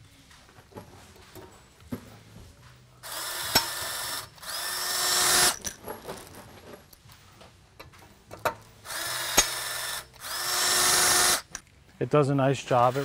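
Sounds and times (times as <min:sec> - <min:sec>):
rivet gun motor running: 0:03.0 - 0:05.7, 0:08.8 - 0:11.6.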